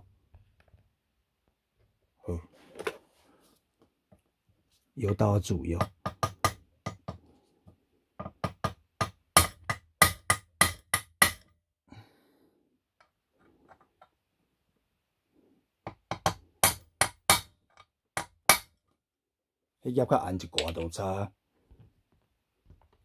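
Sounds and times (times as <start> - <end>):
hammer tapping steel punch on metal: 5.8 - 7.2, 8.2 - 11.5, 15.9 - 17.5.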